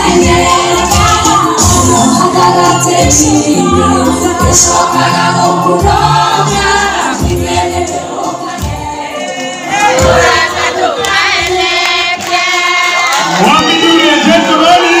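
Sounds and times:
woman singing into a microphone: 0.0s - 5.4s
band bass: 0.0s - 8.0s
congregation singing: 0.0s - 15.0s.

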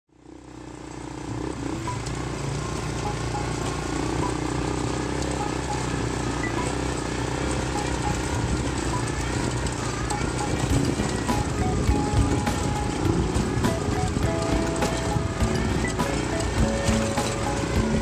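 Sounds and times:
off-road buggy engine running: 0.1s - 18.0s.

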